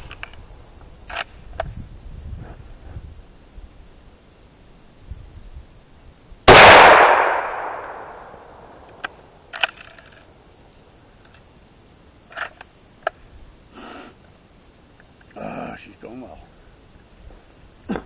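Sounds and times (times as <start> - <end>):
rifle shot with echo: 6.5 - 9.1
rifle bolt clicks: 6.5 - 10.2.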